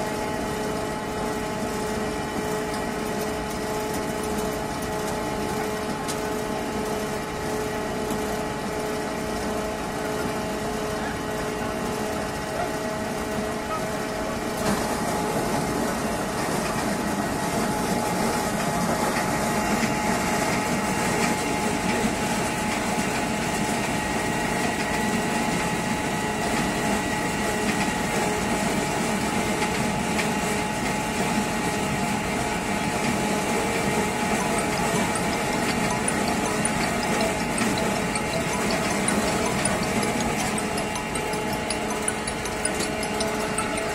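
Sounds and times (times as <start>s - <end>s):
apple press machine hum: 0.0s - 43.9s
mill grinding apples: 0.0s - 43.9s.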